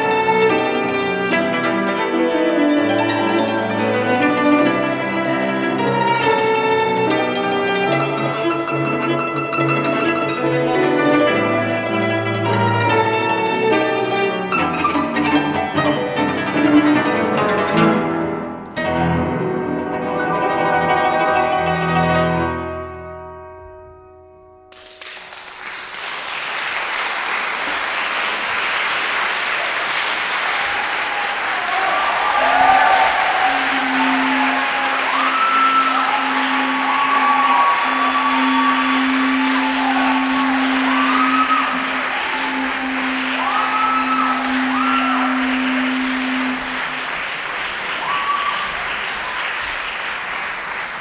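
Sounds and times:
audience applause: 0.0 - 1.7, 24.7 - 51.0
chord on strings and piano: 0.0 - 24.7, 33.0 - 47.7.

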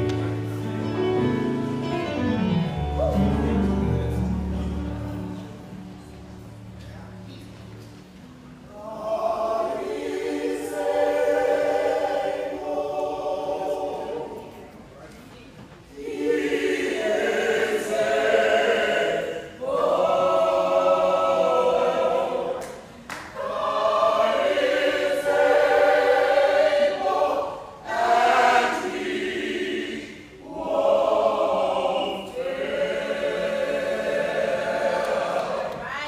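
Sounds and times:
gospel choir singing chords: 8.6 - 14.9, 15.9 - 36.0.

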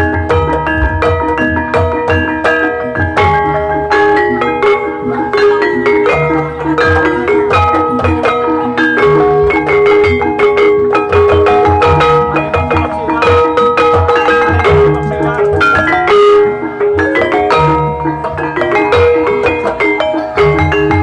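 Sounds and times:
low barrel-drum strokes: 0.0 - 16.8
gamelan metal bars and gong-chimes: 0.0 - 21.0.

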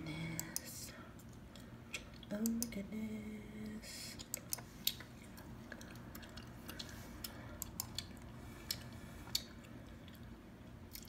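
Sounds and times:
gum chewing wet clicks: 4.2 - 10.3.

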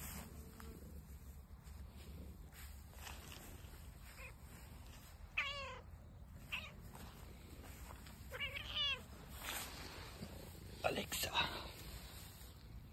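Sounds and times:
cat meowing: 5.3 - 5.9, 6.5 - 6.9, 8.3 - 9.1.

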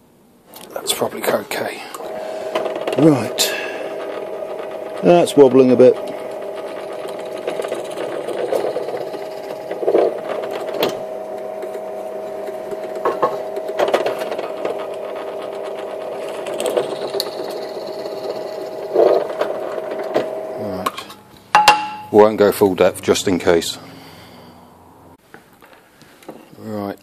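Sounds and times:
drill press motor hum: 1.6 - 25.2
drill bit cutting wood: 1.9 - 20.9.

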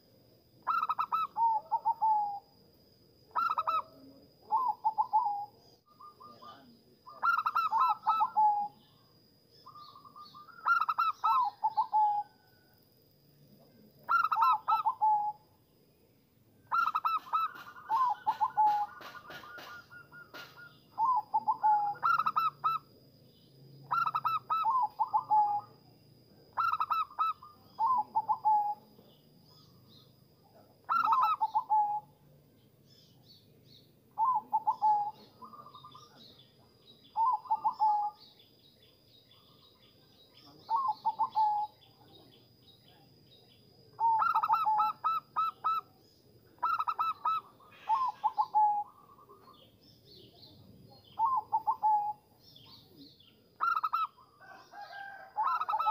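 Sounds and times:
dove cooing: 0.6 - 2.6, 3.3 - 9.0, 9.7 - 12.6, 14.0 - 15.4, 16.7 - 23.0, 23.8 - 25.8, 26.5 - 32.2, 34.2 - 36.4, 37.1 - 38.3, 40.5 - 42.0, 43.9 - 55.9.

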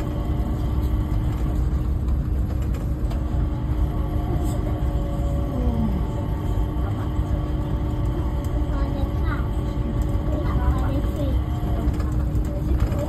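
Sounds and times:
people mover train rumbling: 0.0 - 13.0.

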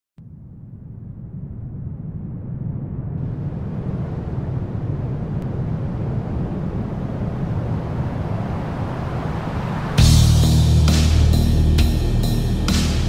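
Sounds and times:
wind noise on microphone: 0.2 - 10.6.

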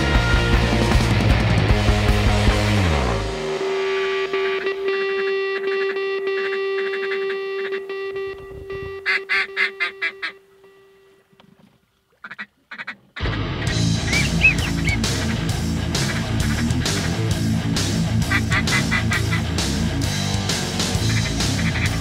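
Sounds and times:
ducks quacking: 4.2 - 10.5, 12.1 - 22.0.

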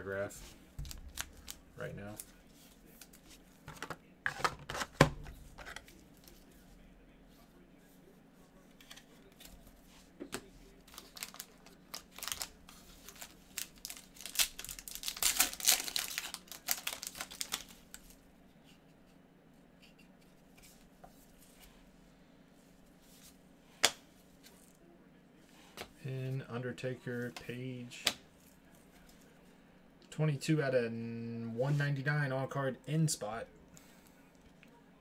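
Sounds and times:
wrapper tearing and crinkling: 0.8 - 1.6, 10.9 - 18.1.

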